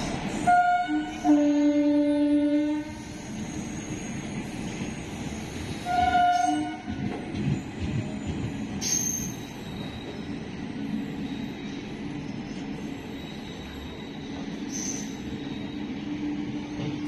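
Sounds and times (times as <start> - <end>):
train wheels rumbling on rails: 0.0 - 17.0
train horn blast: 0.4 - 3.0, 5.8 - 7.0
high wheel squeal: 2.9 - 6.6, 8.1 - 12.0, 12.7 - 17.0.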